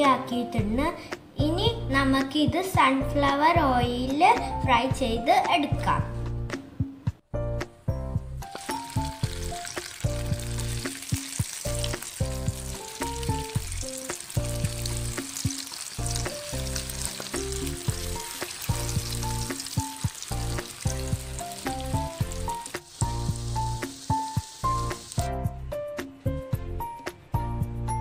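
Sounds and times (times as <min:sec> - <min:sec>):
oil sizzling with crackling pops: 0:08.4 - 0:25.4.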